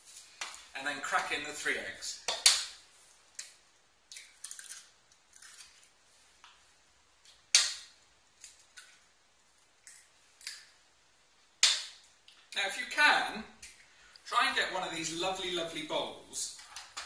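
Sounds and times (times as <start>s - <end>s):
eggshell clicks and rustles: 3.3s - 6.0s
eggshell cracking against bowl: 3.4s - 5.9s.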